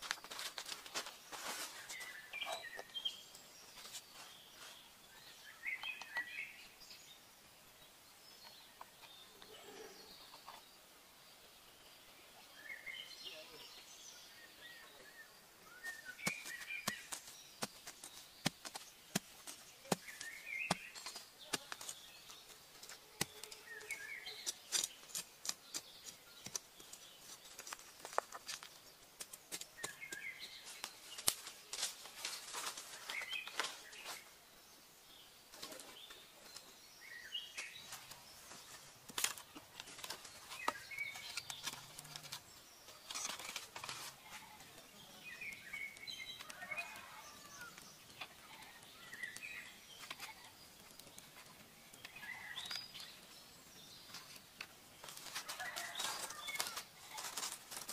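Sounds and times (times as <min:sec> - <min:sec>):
birds chirping: 0:00.0 - 0:57.9
blade scraping in loose soil: 0:15.8 - 0:34.2, 0:37.7 - 0:44.6, 0:54.0 - 0:57.9.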